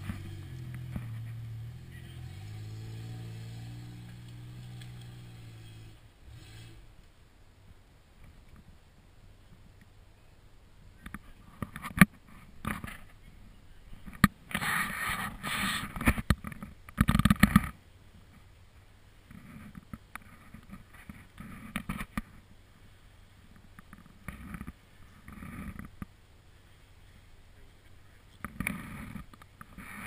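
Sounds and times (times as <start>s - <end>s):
vehicle engine revving: 0.0s - 6.9s.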